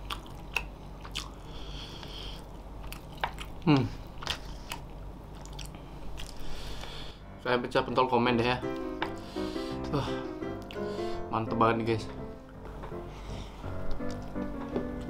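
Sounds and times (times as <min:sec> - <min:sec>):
chewing and mouth smacks: 0:00.0 - 0:01.5, 0:02.4 - 0:06.9, 0:13.9 - 0:14.4.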